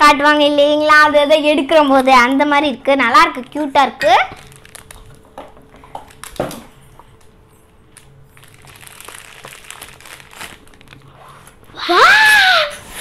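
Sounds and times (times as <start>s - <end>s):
plastic wrapping crinkling: 3.3s - 11.8s.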